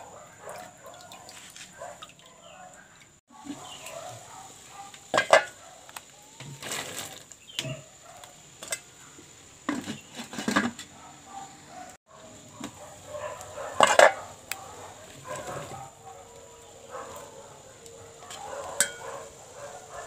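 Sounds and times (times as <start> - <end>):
metal lid clinking on pot: 5.1 - 5.6, 13.8 - 14.3, 18.3 - 19.1.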